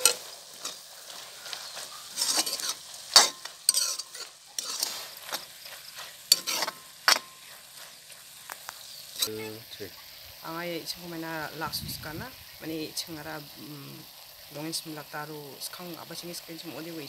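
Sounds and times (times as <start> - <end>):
metal ladle scraping a wok: 0.0 - 8.2, 9.1 - 9.6
light sizzle of frying: 0.0 - 17.0.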